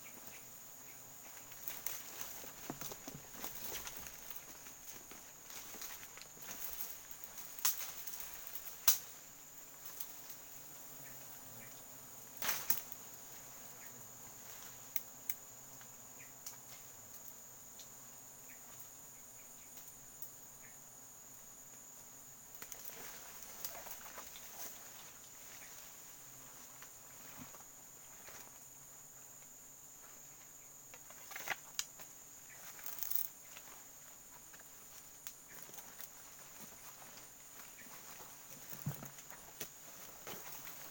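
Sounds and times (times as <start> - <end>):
insects droning: 0.0 - 40.9
twigs snapping and leaves rustling: 1.3 - 10.4, 12.4 - 13.0, 22.5 - 25.9, 30.9 - 33.8, 34.4 - 40.9.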